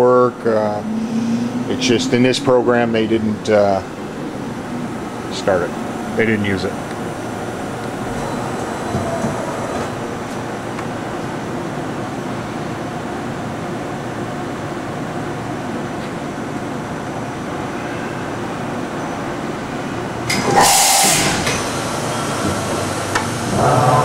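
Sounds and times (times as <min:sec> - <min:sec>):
machine mechanical whir: 0:00.0 - 0:12.8, 0:20.1 - 0:24.0
loud hiss: 0:20.4 - 0:23.6.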